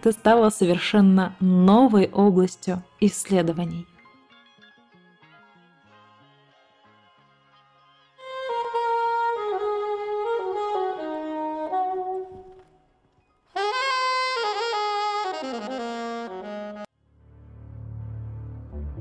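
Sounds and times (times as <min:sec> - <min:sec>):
solo saxophone: 0:08.2 - 0:16.9.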